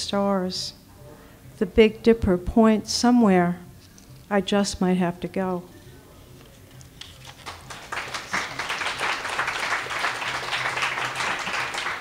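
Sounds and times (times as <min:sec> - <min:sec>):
audience applauding: 0:07.4 - 0:12.0.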